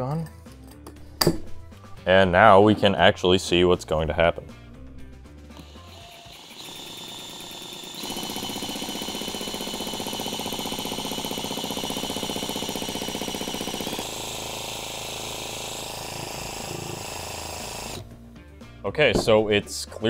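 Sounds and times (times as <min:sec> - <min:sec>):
drill motor whine: 0:05.6 - 0:18.1
rhythmic vacuum pump pumping: 0:05.6 - 0:18.1.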